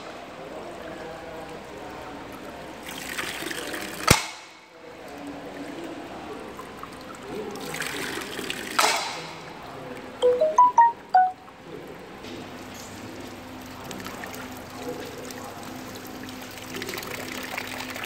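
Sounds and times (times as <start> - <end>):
water trickling into bamboo: 0.3 - 4.1, 4.7 - 10.1, 12.6 - 18.0
high chirps: 10.2 - 11.4.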